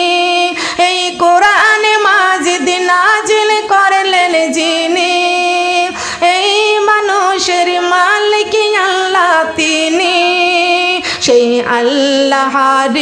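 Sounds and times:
woman singing devotional song: 0:00.0 - 0:13.0
singer breathing: 0:00.5 - 0:00.8, 0:05.9 - 0:06.3, 0:11.0 - 0:11.3.

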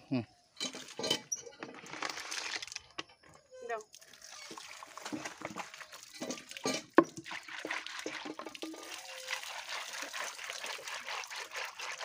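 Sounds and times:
splashing water: 0:03.9 - 0:12.0.

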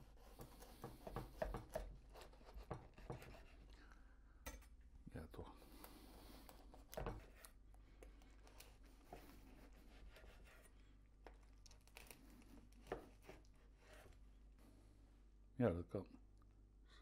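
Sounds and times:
knife cutting crusty bread: 0:00.0 - 0:03.7, 0:06.3 - 0:07.6, 0:08.2 - 0:14.2.

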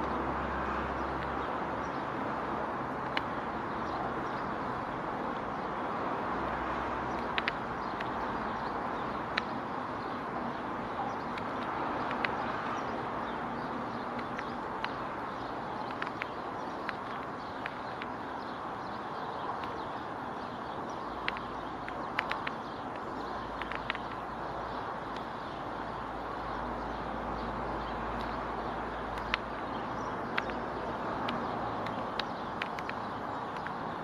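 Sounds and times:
outdoor background hiss: 0:00.0 - 0:34.0
woodpecker tapping: 0:02.9 - 0:04.7, 0:07.1 - 0:26.2, 0:27.8 - 0:34.0.

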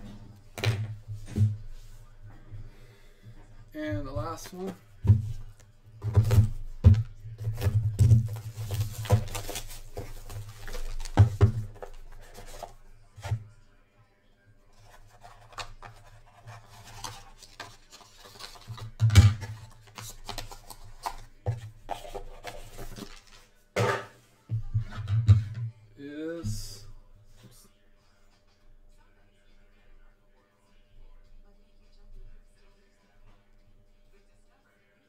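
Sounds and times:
plastic wrap crinkling: 0:07.6 - 0:11.2.

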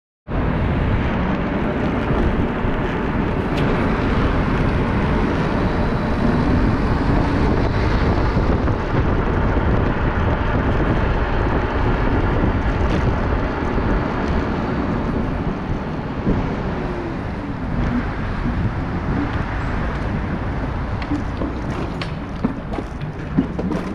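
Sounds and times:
road and traffic noise: 0:00.3 - 0:23.9
wind rush over microphone: 0:00.3 - 0:23.9.

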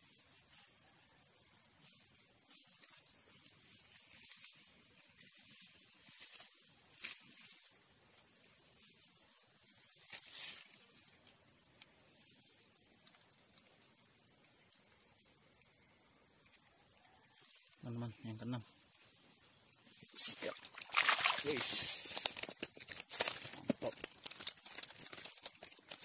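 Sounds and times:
insects trilling: 0:00.0 - 0:26.0
rustling in leaf litter: 0:10.0 - 0:11.1, 0:20.2 - 0:26.0.

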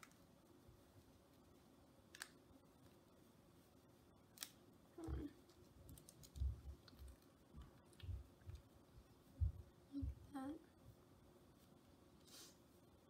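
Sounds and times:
soft low thumps: 0:07.5 - 0:10.6.

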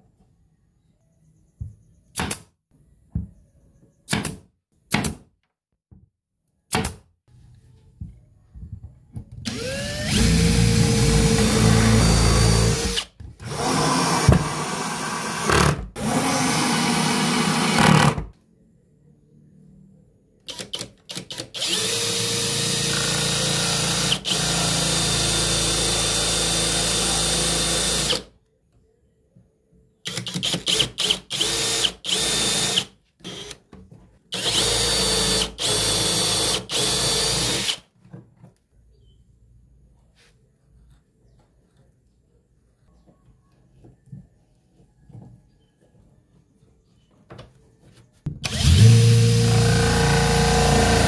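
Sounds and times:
cordless drill boring into wood: 0:09.5 - 0:18.2, 0:20.5 - 0:28.2, 0:30.1 - 0:33.6, 0:34.3 - 0:37.8, 0:48.4 - 0:51.0.

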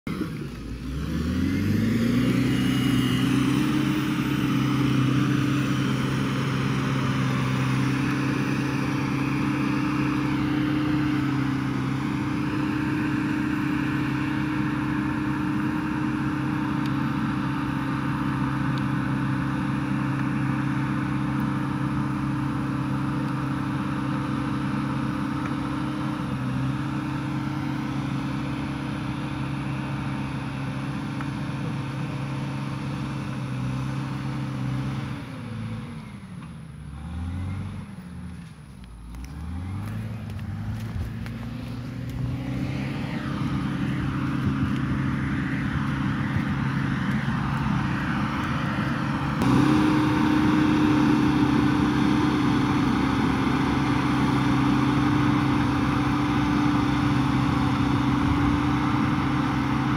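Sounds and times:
dozer diesel engine revving: 0:00.0 - 0:59.9.

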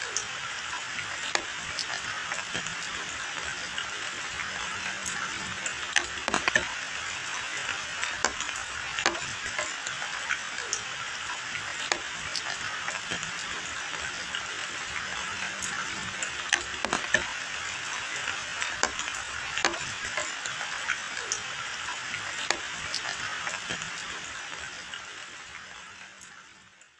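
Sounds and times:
rain on foliage and pavement: 0:00.0 - 0:26.6
large drops ticking: 0:11.6 - 0:26.3.

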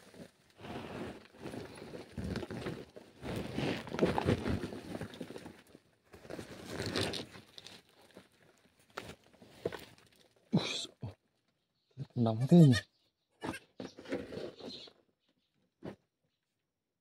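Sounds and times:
body scraping against dirt and rock: 0:00.0 - 0:10.4, 0:13.5 - 0:14.9.

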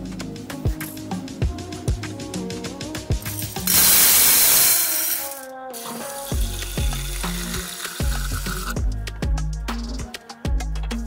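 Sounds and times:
background music: 0:00.0 - 0:11.0
lentils rattling into a pot: 0:03.3 - 0:08.1.

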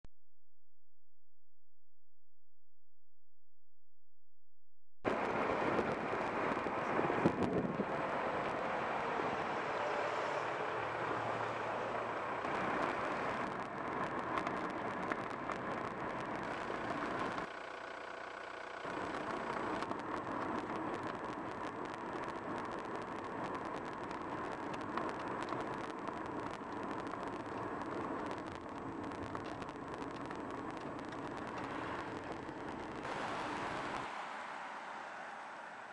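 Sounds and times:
car tyre and engine noise: 0:05.1 - 0:35.9
small clicks: 0:12.8 - 0:33.0.

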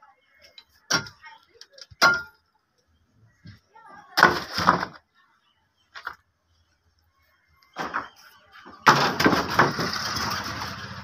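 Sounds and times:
wooden boards clattering: 0:04.2 - 0:05.0, 0:07.8 - 0:10.4.

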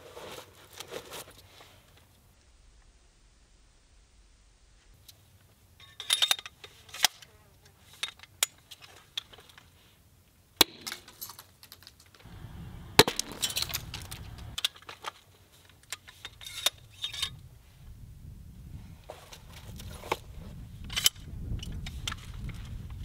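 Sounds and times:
dense rattling: 0:12.3 - 0:14.6
loud sharp crack: 0:12.3 - 0:14.6.

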